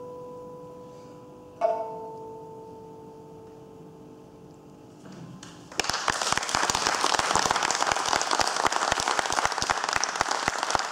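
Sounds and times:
audience applause: 5.7s - 10.9s.

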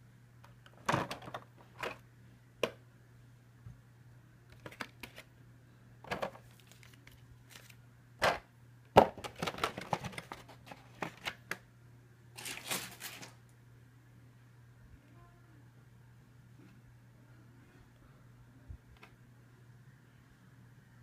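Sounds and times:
plastic packaging clicking and crinkling: 4.5s - 5.3s, 6.1s - 7.8s, 9.0s - 11.6s, 12.4s - 13.4s.

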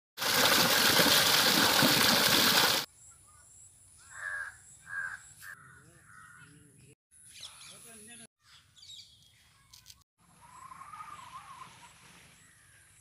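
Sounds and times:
water gushing into channel: 0.2s - 2.9s
crow cawing: 4.0s - 6.4s.

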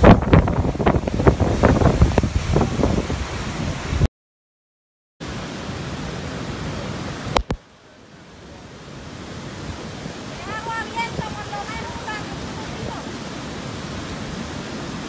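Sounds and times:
surf crashing: 0.0s - 4.1s, 5.2s - 7.6s, 8.5s - 15.0s
water rushing through spillway: 0.0s - 4.1s, 5.2s - 15.0s
wind buffeting microphone: 0.0s - 4.1s.

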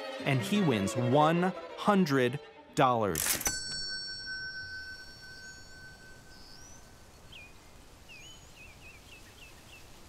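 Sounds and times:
faint held tone: 3.5s - 7.5s
small birds chirping: 5.4s - 10.0s.

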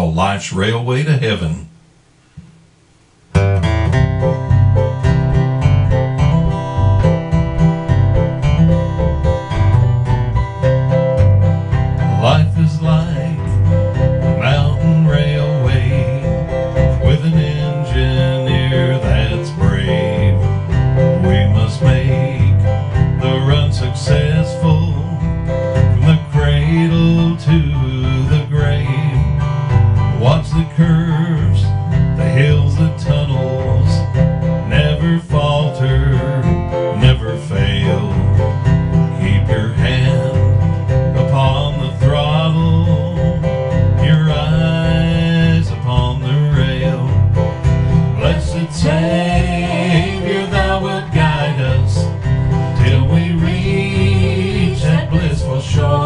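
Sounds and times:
keyboard with pulsing bass: 1.0s - 56.0s
strummed acoustic guitar: 3.3s - 56.0s
man and woman singing: 12.2s - 13.6s, 14.4s - 25.3s, 26.0s - 29.3s, 30.2s - 34.1s, 34.7s - 38.4s, 39.2s - 40.6s, 41.2s - 47.2s, 47.9s - 56.0s.

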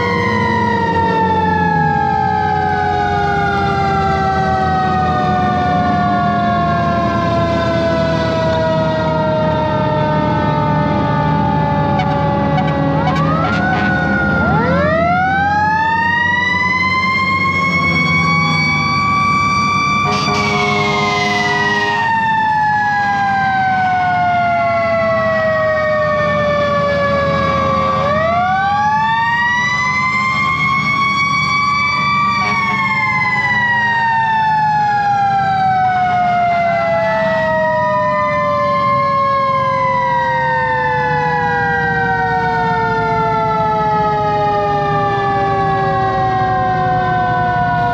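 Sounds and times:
fire engine sirens wailing: 0.0s - 47.9s
air horn blast: 11.9s - 14.2s, 20.0s - 22.2s, 32.4s - 32.9s.

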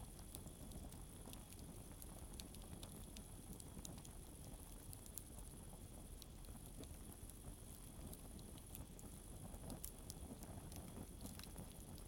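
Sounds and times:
campfire crackling: 9.7s - 12.0s.

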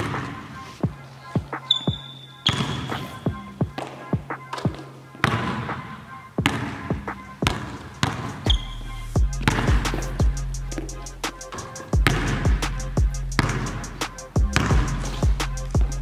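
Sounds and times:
background music: 0.0s - 16.0s
basketball bouncing on hardwood floor: 1.4s - 5.8s, 6.4s - 9.9s, 11.6s - 12.6s, 13.4s - 13.7s, 14.5s - 15.0s.

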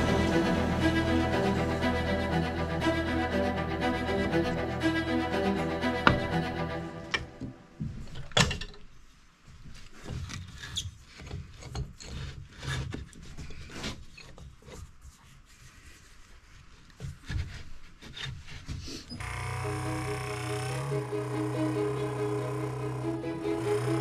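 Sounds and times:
string music: 0.0s - 7.8s, 19.3s - 24.0s.

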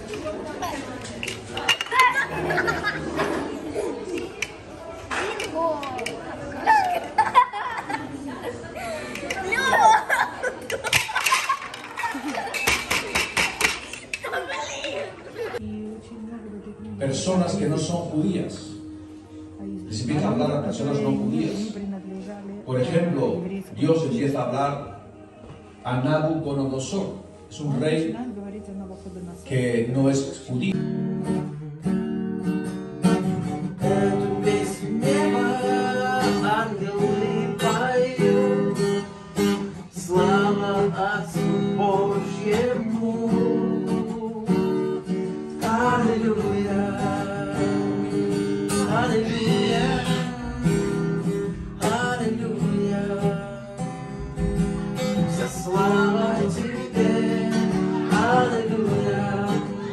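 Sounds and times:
acoustic guitar strumming: 16.9s - 21.9s, 23.8s - 59.9s
person singing: 33.7s - 39.2s, 45.6s - 53.9s, 55.2s - 59.9s.

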